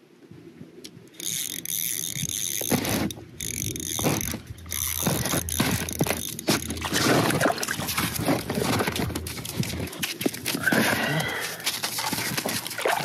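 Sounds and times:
fishing reel clicking: 1.1 - 10.0.

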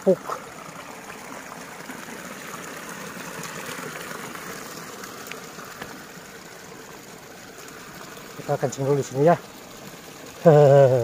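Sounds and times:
water trickling in stony ditch: 0.0 - 11.0.

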